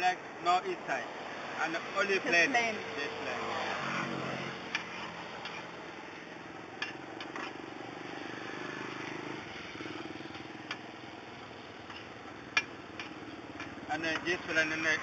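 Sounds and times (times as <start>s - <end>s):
scooter engine running: 6.3s - 15.0s.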